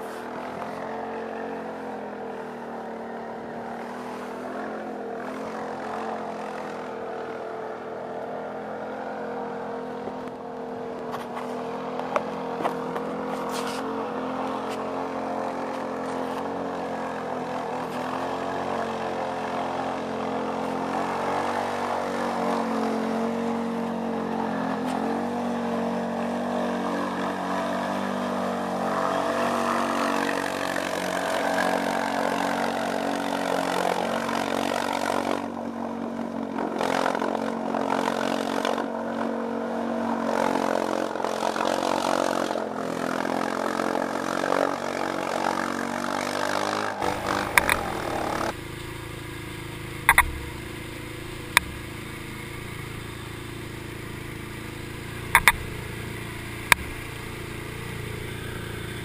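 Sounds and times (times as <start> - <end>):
quad bike engine revving: 0.0 - 59.0
vehicle through deep water: 0.0 - 59.0
sharp knocks: 50.1 - 50.6.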